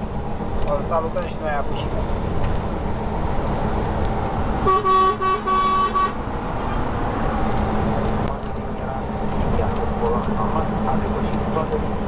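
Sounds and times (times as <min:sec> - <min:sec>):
road noise: 0:00.0 - 0:12.0
truck engine drone: 0:00.0 - 0:12.0
truck horn short toots: 0:04.6 - 0:06.2.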